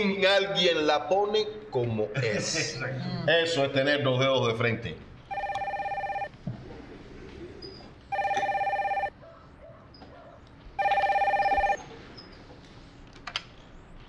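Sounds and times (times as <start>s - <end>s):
telephone trilling ring: 5.3s - 6.3s, 8.1s - 9.1s, 10.8s - 11.8s.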